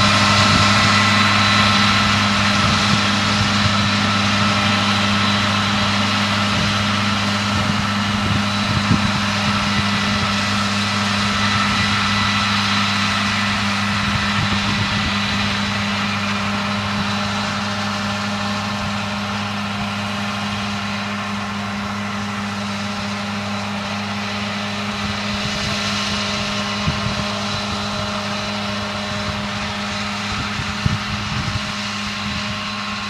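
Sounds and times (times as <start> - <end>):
engine running steadily: 0.0 - 33.0.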